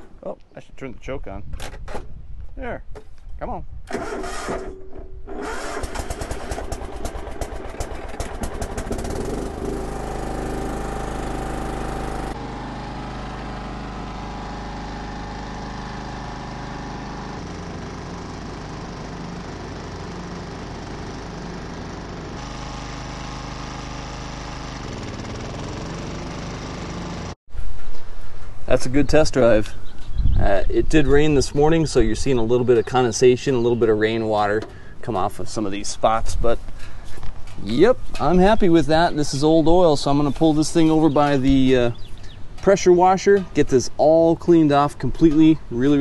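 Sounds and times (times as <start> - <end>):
garden tractor engine running: 3.9 - 4.7, 5.3 - 27.4, 36.9 - 46.0.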